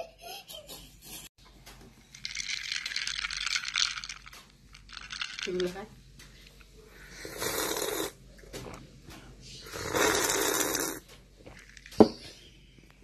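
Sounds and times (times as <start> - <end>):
rasping snore-like breaths: 9.6 - 11.0.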